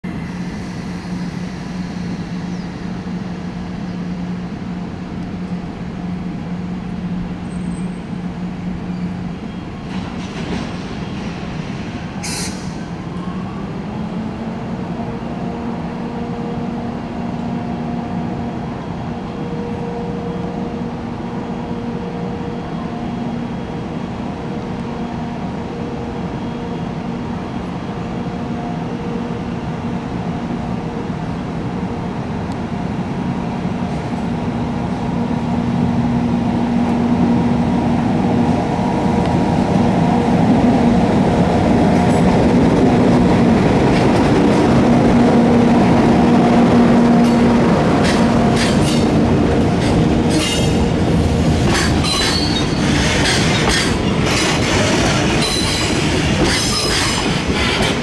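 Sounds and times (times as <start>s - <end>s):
electric locomotive humming: 0.0s - 58.0s
sharp hiss: 12.2s - 12.8s.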